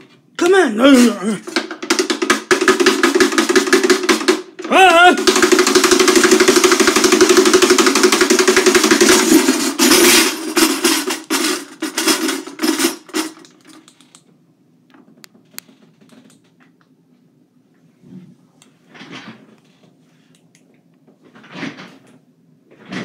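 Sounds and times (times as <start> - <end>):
loud rapid rattle: 1.0 - 13.8.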